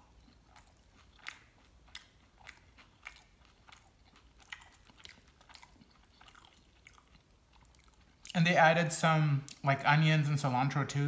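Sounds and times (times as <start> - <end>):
person chewing crunchy chips: 0.0 - 8.4.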